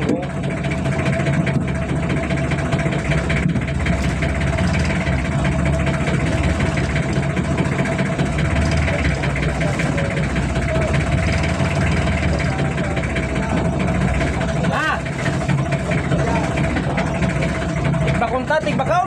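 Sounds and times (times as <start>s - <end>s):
boat engine humming with whine: 0.0s - 19.0s.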